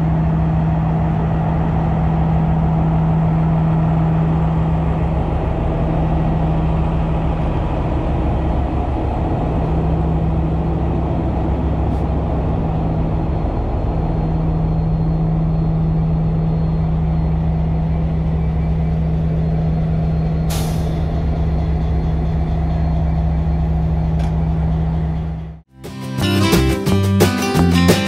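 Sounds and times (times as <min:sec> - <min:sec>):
diesel engine idling: 0:00.0 - 0:25.7
brake air hiss: 0:20.5 - 0:21.1.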